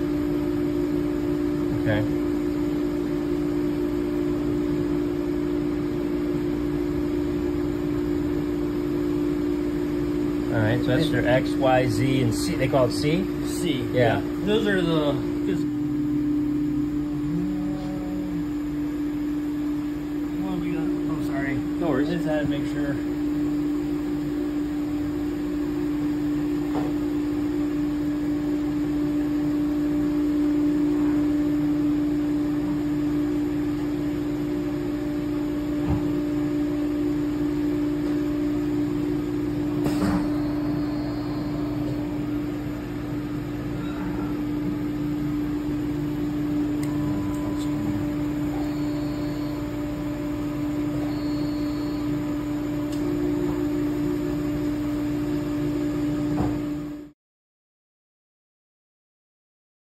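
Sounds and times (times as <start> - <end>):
machine electric hum: 0.0 - 57.2
short high beeps: 40.1 - 42.5, 46.9 - 49.9, 50.9 - 52.2.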